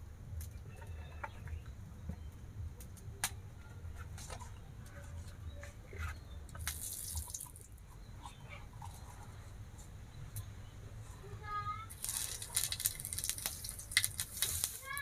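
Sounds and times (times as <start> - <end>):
straw fire crackling: 6.5 - 8.0, 11.9 - 15.0.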